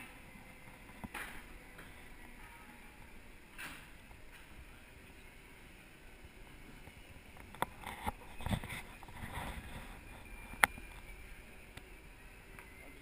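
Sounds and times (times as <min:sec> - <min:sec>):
segway rolling: 0:00.0 - 0:13.0.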